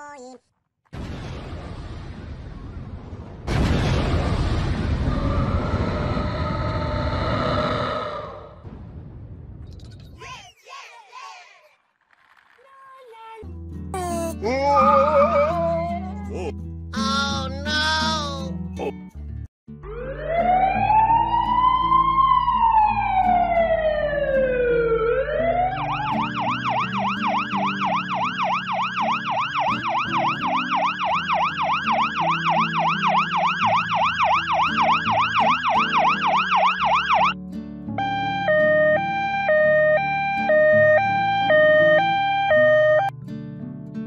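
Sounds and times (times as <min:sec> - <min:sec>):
electronic siren: 0:19.8 - 0:37.4, 0:38.0 - 0:43.1.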